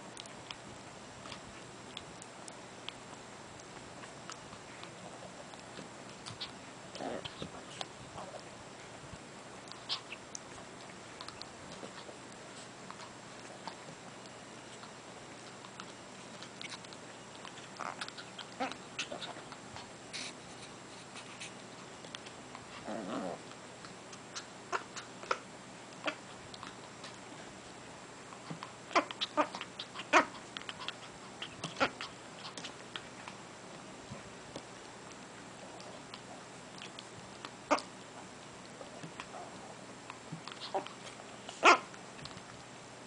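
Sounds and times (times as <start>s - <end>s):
dog growling: 6.3s - 8.6s, 17.4s - 19.9s, 22.7s - 23.6s, 28.5s - 33.1s, 40.4s - 41.9s.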